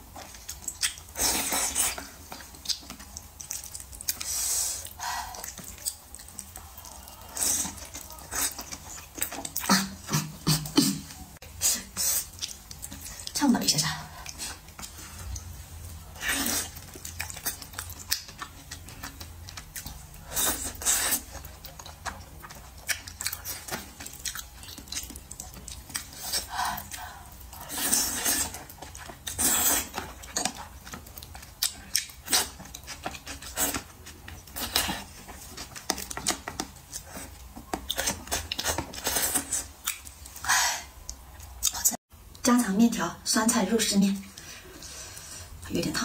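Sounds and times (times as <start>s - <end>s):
wet chewing: 0.0s - 42.4s
slurping: 14.2s - 40.1s.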